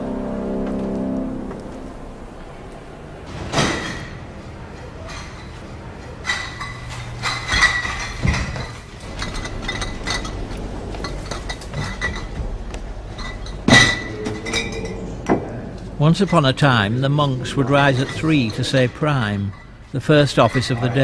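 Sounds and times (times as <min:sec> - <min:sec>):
glass bottles clinking: 0:05.0 - 0:12.4, 0:13.1 - 0:15.4.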